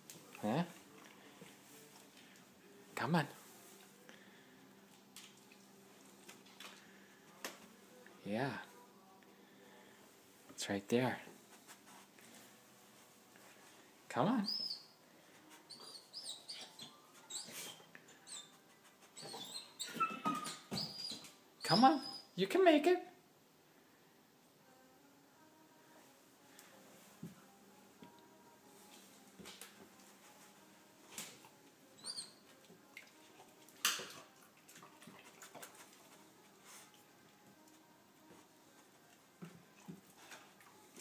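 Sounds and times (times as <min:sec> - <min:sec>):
dog whining: 0:19.2 - 0:22.3.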